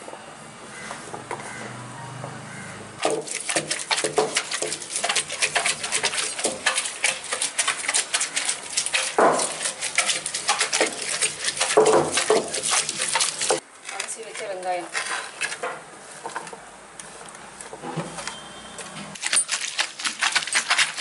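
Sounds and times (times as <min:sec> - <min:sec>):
stone pestle clattering on stone: 0:03.0 - 0:12.9.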